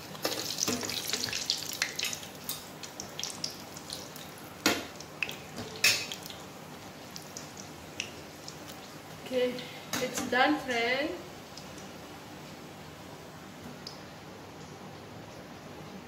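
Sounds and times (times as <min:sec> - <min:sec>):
oil sizzling and popping: 0:00.0 - 0:09.3, 0:09.9 - 0:12.6.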